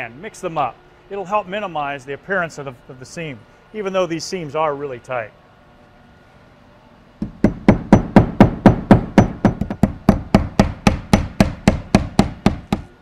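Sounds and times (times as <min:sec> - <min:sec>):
hammer driving nails: 0:07.2 - 0:12.9.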